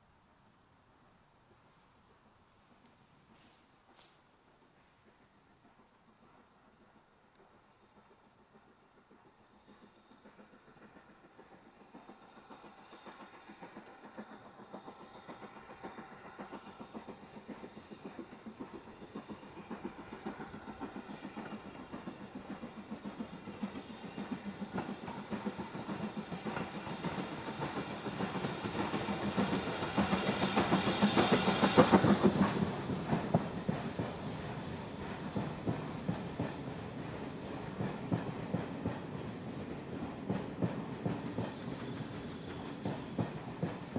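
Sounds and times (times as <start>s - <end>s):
steam train passing: 0.9s - 43.9s.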